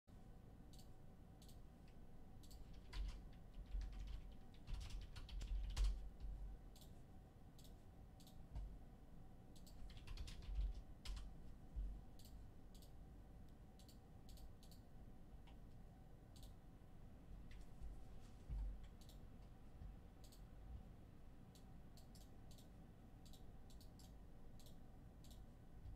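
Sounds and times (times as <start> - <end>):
computer keyboard typing: 2.4 - 6.9, 9.6 - 11.4.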